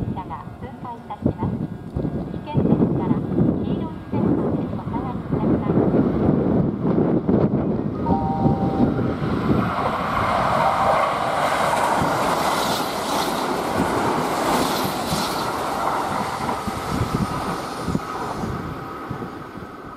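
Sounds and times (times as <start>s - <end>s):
train rushing past: 2.8s - 19.9s.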